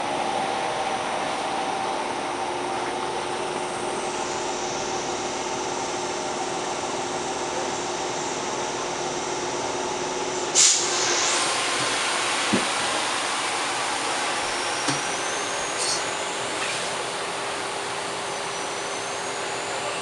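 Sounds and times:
train equipment humming: 0.0 - 20.0
compressed air hissing: 10.5 - 16.1.

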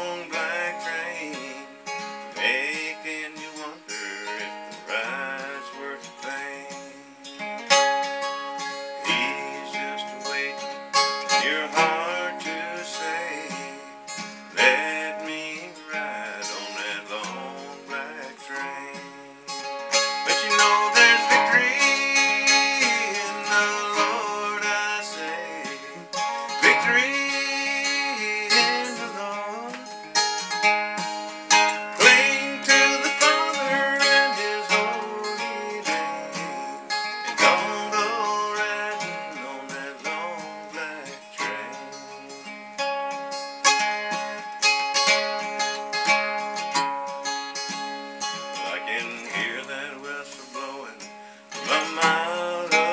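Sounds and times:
acoustic guitar: 0.0 - 52.9.

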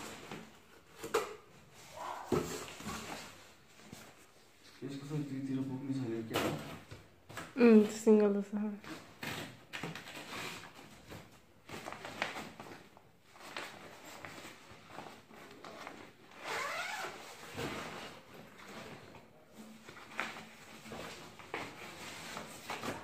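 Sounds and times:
zipper pulled: 16.3 - 17.4.

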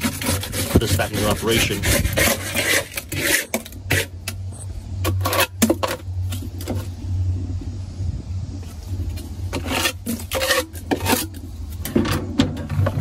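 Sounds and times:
ice scraping in freezer: 0.0 - 4.2, 9.5 - 11.5
steady low hum: 0.0 - 13.0.

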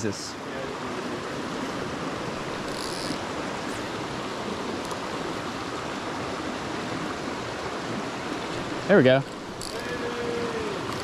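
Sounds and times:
creek flowing over rocks: 0.0 - 11.0.

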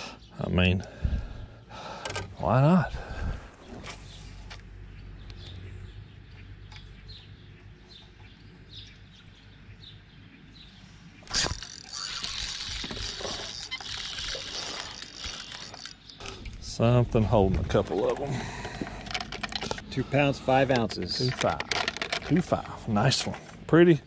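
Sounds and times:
fishing reel whirring: 11.2 - 16.4
low steady hum: 15.6 - 24.0.

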